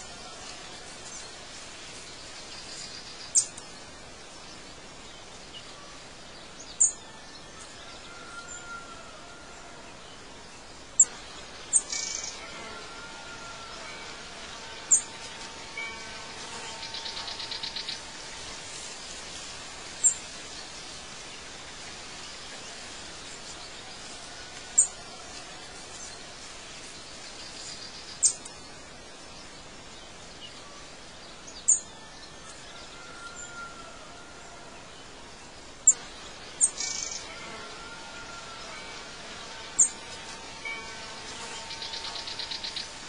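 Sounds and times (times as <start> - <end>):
steady outdoor hiss: 0.0 - 43.0
bird trill: 36.6 - 37.3.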